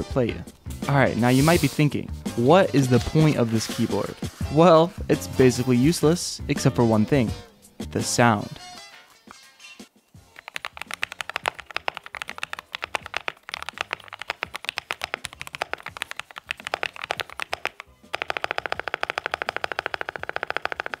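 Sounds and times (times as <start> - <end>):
mechanical keyboard typing: 10.3 - 21.0.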